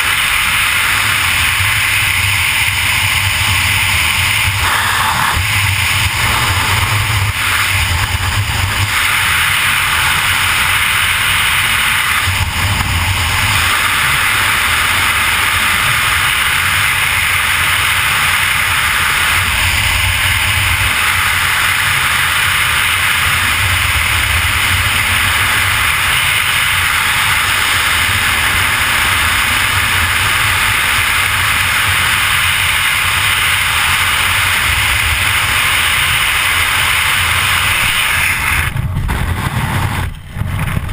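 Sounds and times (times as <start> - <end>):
wind rushing over microphone: 0.0 - 40.9.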